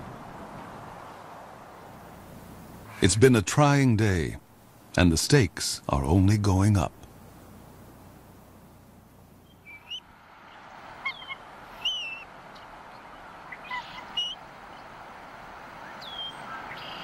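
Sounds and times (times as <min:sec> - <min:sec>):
faint wind hiss: 0:00.0 - 0:17.0
eagle chirping calls: 0:09.4 - 0:10.0, 0:11.0 - 0:14.9, 0:15.8 - 0:17.0.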